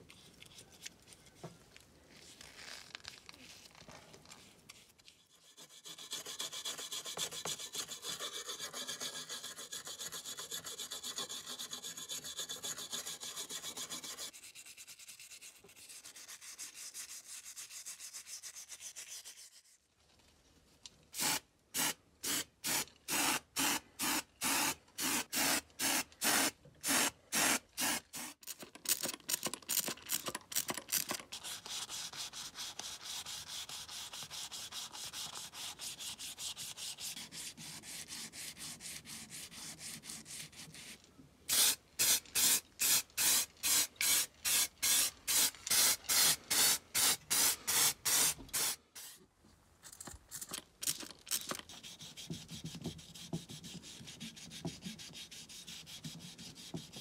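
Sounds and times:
sandpaper rubbing on metal: 0:05.2 - 0:19.8, 0:31.3 - 0:49.2, 0:51.7 - 0:57.0.

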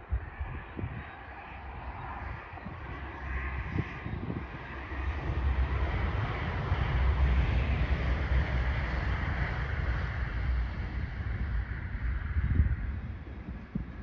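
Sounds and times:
wind buffeting microphone: 0:00.0 - 0:14.0
diesel train rumble: 0:04.2 - 0:14.0.

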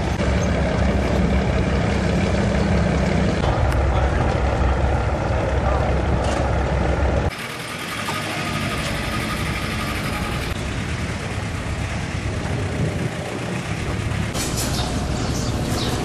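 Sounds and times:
boat engine rumbling: 0:00.0 - 0:16.0.

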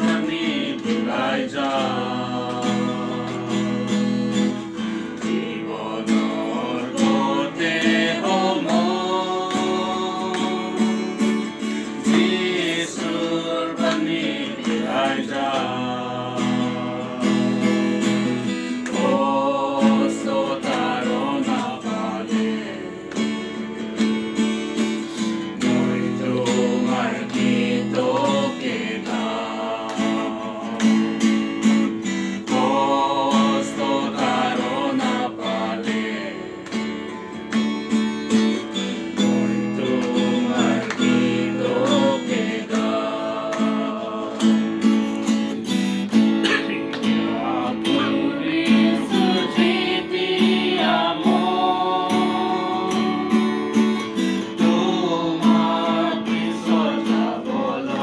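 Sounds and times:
group singing worship song: 0:00.0 - 0:45.8, 0:46.4 - 0:58.0
acoustic guitar strumming: 0:00.0 - 0:58.0.

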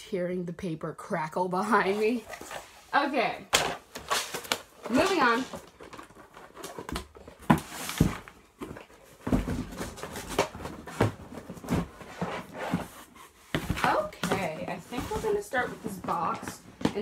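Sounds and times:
paper and cardboard rustling: 0:01.6 - 0:17.0
knocks and thumps in cardboard box: 0:03.6 - 0:17.0.

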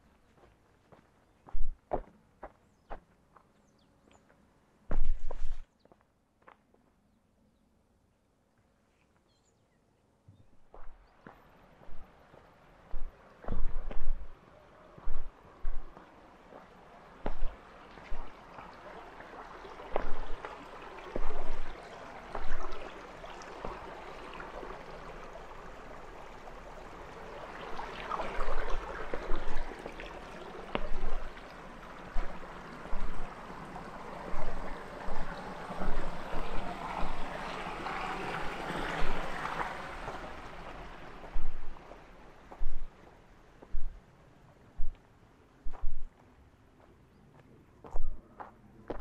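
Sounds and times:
rushing water: 0:10.6 - 0:47.0.

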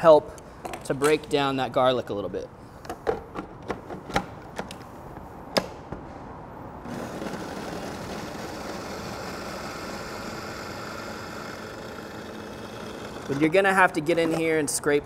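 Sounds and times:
food processor motor chopping: 0:06.9 - 0:13.4.

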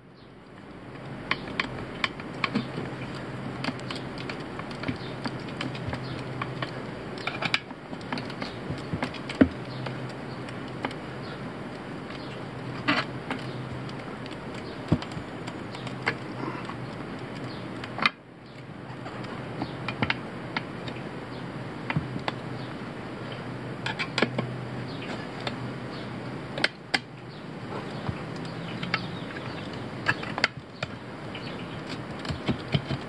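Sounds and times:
tire levers scraping wheel rim: 0:12.2 - 0:18.1, 0:23.8 - 0:25.6, 0:26.6 - 0:33.0.

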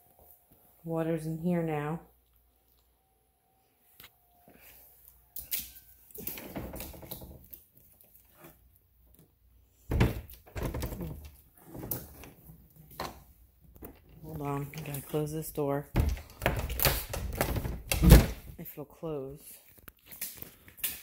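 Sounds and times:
knocks and thuds: 0:09.9 - 0:11.3.

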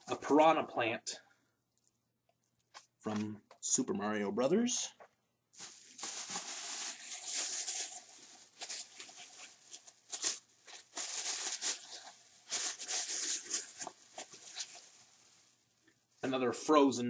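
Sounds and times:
plastic bag rustling: 0:05.6 - 0:15.6.

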